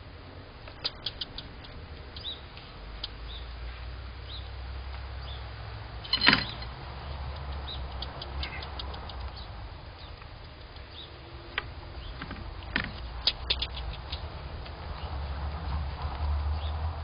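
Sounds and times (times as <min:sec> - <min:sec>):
steady low hum: 0:00.0 - 0:17.0
sharp clicks: 0:00.6 - 0:03.3, 0:06.0 - 0:14.8
faint high chirps: 0:06.0 - 0:06.7.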